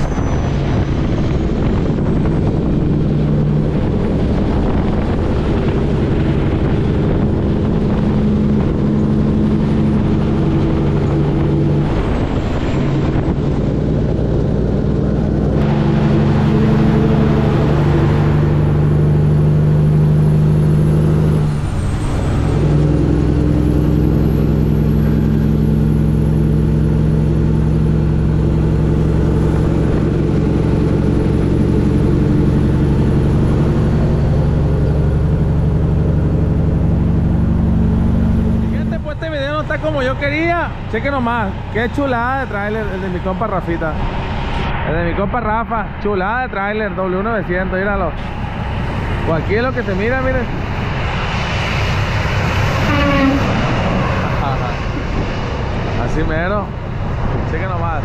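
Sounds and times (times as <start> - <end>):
truck diesel engine running: 0.0 - 58.0.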